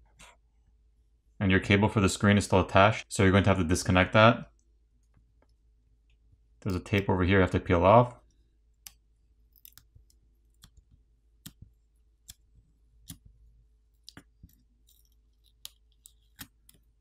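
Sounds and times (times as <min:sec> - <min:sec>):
faint clicks and ticks: 0:08.2 - 0:17.0.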